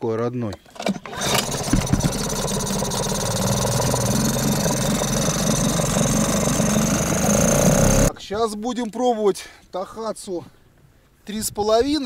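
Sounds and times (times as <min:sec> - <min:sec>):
outboard motor running: 0:00.9 - 0:08.2.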